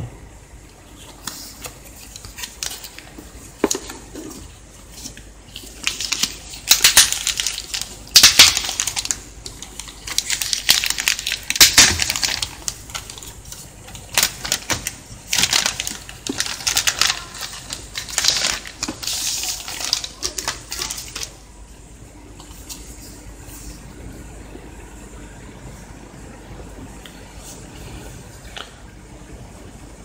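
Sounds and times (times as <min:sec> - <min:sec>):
plastic packaging crinkling: 0:00.9 - 0:21.5.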